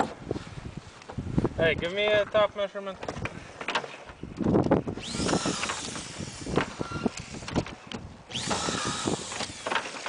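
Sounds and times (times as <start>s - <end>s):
cordless drill driving screws: 4.9s - 10.0s.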